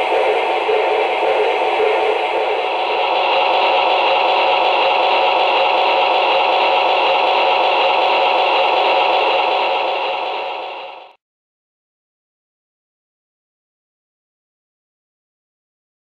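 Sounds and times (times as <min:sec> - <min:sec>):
model trains running: 0:00.0 - 0:11.2.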